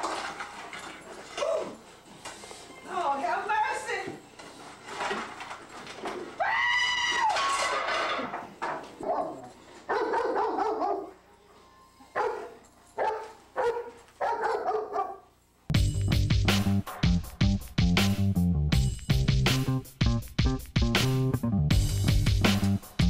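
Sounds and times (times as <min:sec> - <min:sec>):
dog barking: 0:09.0 - 0:11.2, 0:12.2 - 0:15.3.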